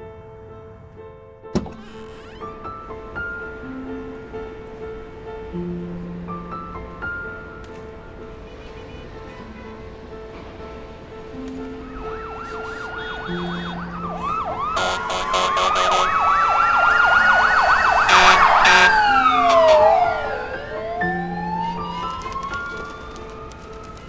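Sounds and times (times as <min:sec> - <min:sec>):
fire engine siren yelping: 0:11.9 - 0:23.5
second siren: 0:12.0 - 0:23.3
horn blasts: 0:12.5 - 0:13.9, 0:14.7 - 0:16.4, 0:18.0 - 0:20.2.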